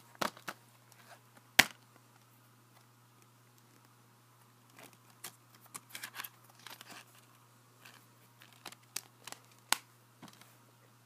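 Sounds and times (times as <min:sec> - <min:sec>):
plastic case rustling and clicking: 0:04.7 - 0:10.5.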